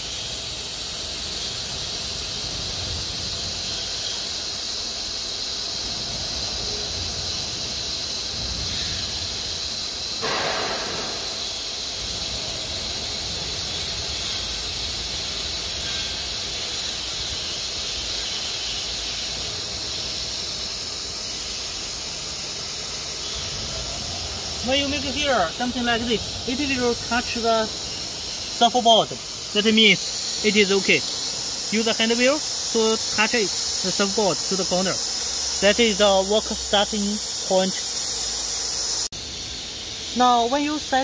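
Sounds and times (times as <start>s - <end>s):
steady hiss: 0.0s - 41.0s.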